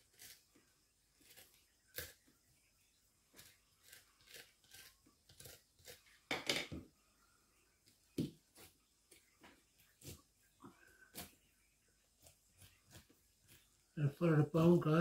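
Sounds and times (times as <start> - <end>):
knife slicing and scraping flesh: 1.2 - 2.3, 3.4 - 6.2.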